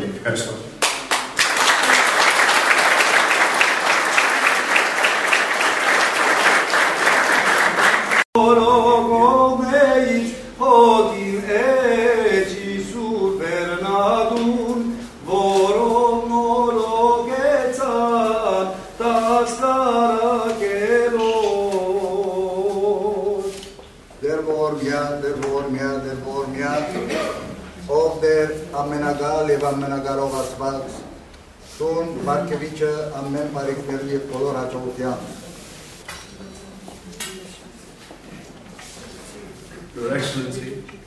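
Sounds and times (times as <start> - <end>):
audience applauding: 0.8 - 8.3
clergy chanting a hymn: 7.7 - 31.0.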